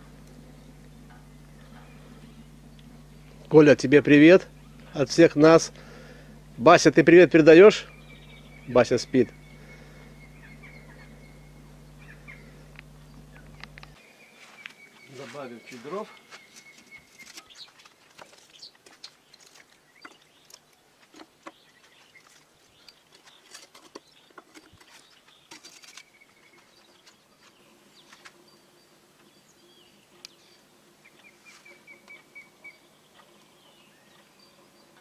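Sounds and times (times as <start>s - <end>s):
birds chirping: 0.0s - 35.0s
burning wood clicking and snapping: 9.4s - 14.0s, 16.7s - 26.2s.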